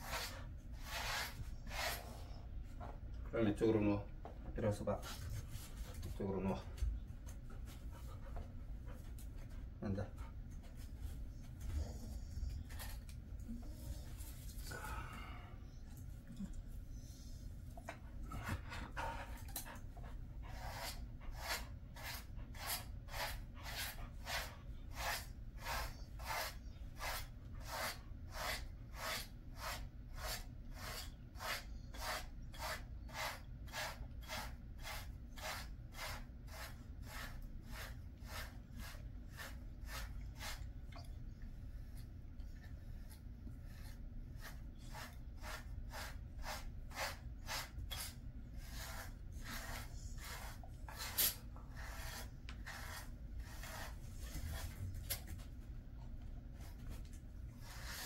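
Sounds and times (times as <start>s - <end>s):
brush strokes through dog fur: 0.0s - 2.2s, 20.5s - 40.7s, 41.8s - 55.3s.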